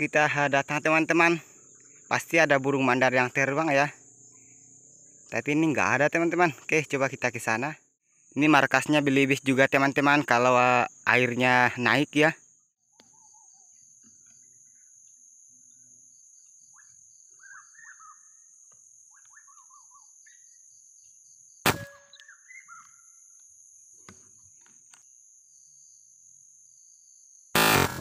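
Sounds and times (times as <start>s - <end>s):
high-pitched insect drone: 0.0s - 12.4s, 25.0s - 28.0s
chirping bird calls: 12.9s - 15.1s, 16.4s - 20.7s, 21.7s - 23.4s
sharp click: 21.6s - 22.3s
rifle shot: 21.7s - 22.0s.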